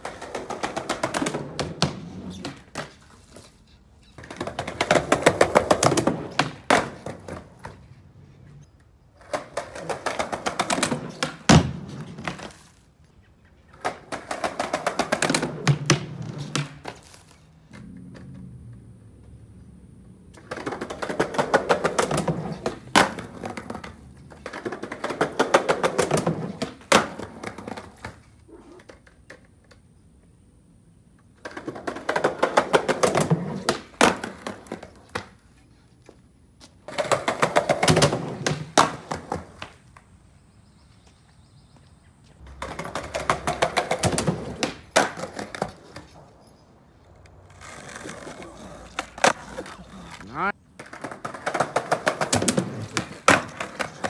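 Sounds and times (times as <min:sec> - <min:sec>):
skateboard wheels clattering on pavers: 0:00.0 - 0:30.4, 0:31.0 - 0:54.0
skateboard ollie clack: 0:13.7 - 0:19.3, 0:20.2 - 0:29.8, 0:36.9 - 0:40.1, 0:42.4 - 0:46.2, 0:47.2 - 0:54.0.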